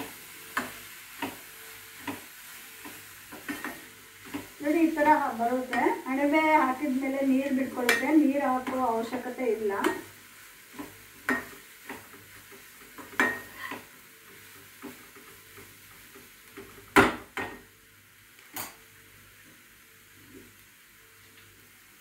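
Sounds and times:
faint sizzle: 0.0s - 22.0s
metal spoon scraping a frying pan: 10.8s - 13.9s.

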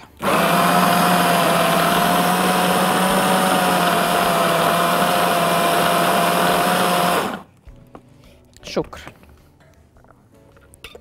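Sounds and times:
food processor motor running: 0.0s - 7.5s.

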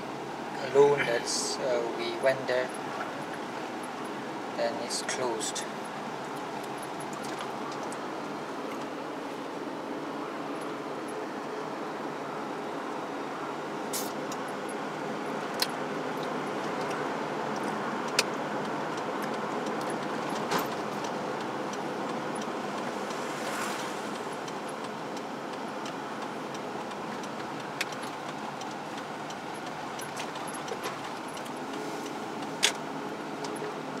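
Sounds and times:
car cabin road and engine noise: 0.0s - 34.0s
sharp clicks and rattles: 24.1s - 31.8s.

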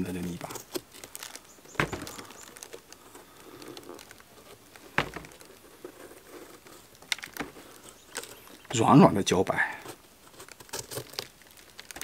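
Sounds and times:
knife shaving mushroom stem: 9.7s - 12.0s.

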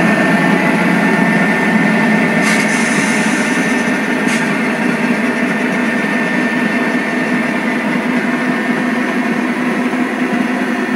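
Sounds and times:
high whine: 0.0s - 8.5s
model train running: 0.0s - 10.9s.

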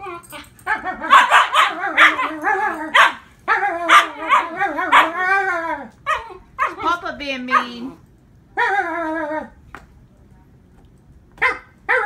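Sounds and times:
puppy yowling and crying: 0.0s - 7.7s.

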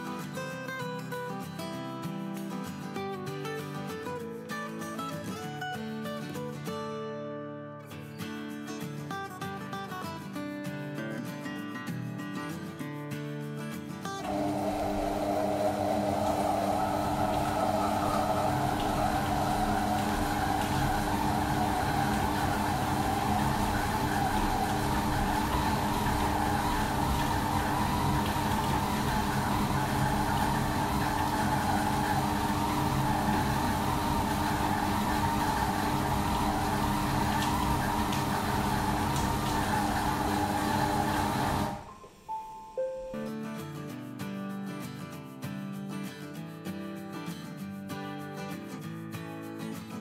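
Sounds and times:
kitchen robot motor humming: 14.2s - 41.9s.

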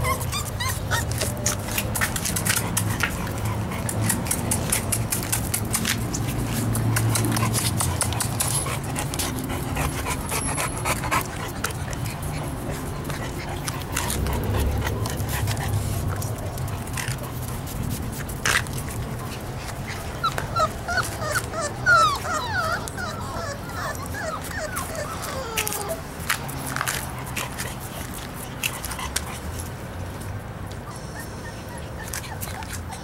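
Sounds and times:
puppies whimpering: 0.0s - 28.0s, 30.6s - 33.0s
puppies panting: 0.0s - 33.0s
short clicks and scuffs: 0.5s - 9.5s, 24.4s - 30.8s.

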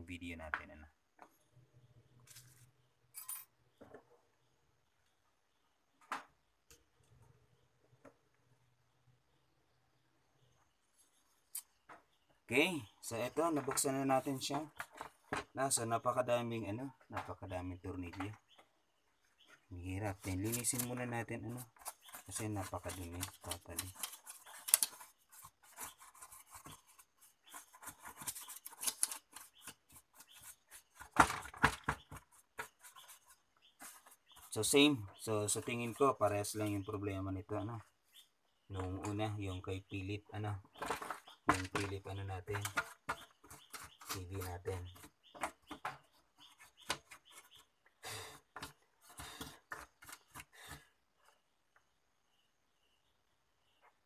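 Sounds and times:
brush scratching on metal: 20.1s - 31.2s, 32.0s - 35.9s, 42.5s - 45.7s.

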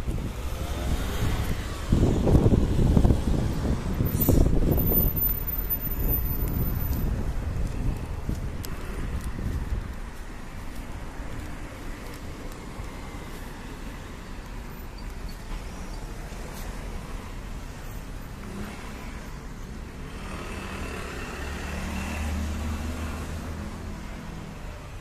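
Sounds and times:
cars driving past: 0.0s - 25.0s.

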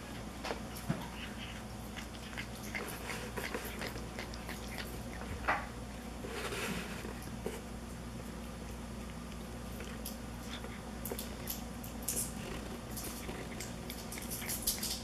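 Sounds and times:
cat chewing grass: 0.7s - 5.6s, 9.0s - 15.0s.

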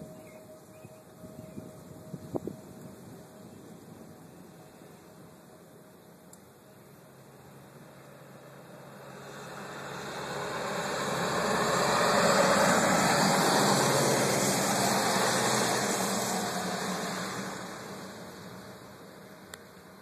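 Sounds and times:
vehicle driving past: 7.4s - 19.9s.

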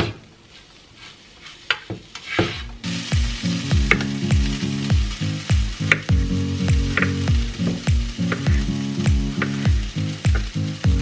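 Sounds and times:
spatula scraping a pan: 0.0s - 2.8s
food sizzling in a frying pan: 0.0s - 11.0s
music with thudding beat: 2.7s - 11.0s.

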